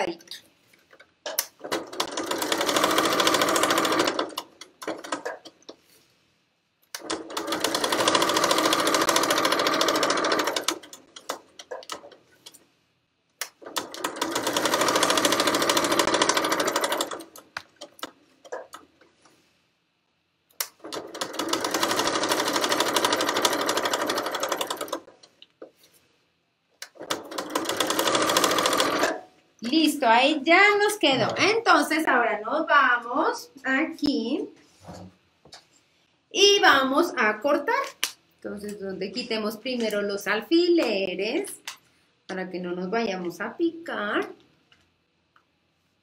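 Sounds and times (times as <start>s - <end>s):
sewing machine stitching: 1.4s - 5.5s, 7.0s - 12.2s, 13.6s - 18.8s, 20.6s - 25.3s, 26.9s - 29.2s.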